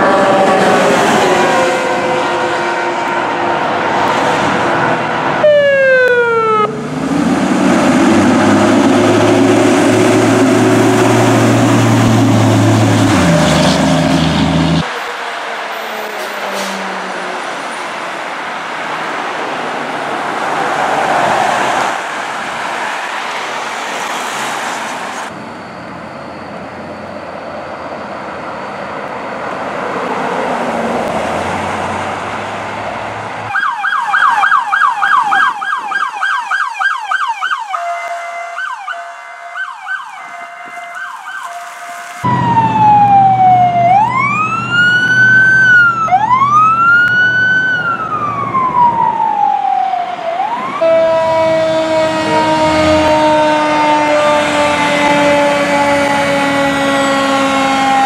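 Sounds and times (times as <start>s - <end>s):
truck engine rumble: 0.0s - 21.0s, 25.0s - 33.5s, 42.2s - 58.0s
fire truck siren: 0.0s - 32.7s, 33.4s - 58.0s
passing traffic: 0.0s - 58.0s.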